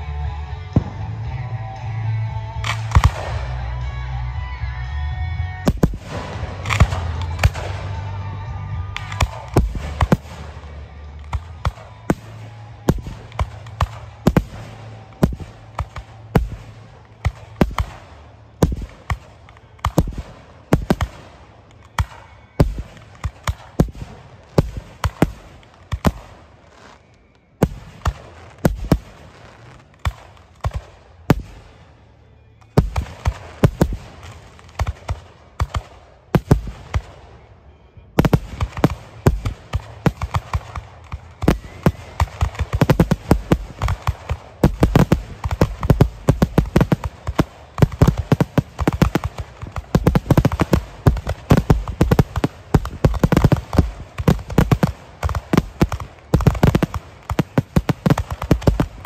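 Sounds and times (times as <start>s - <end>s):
firework shells bursting: 38.2s - 59.0s.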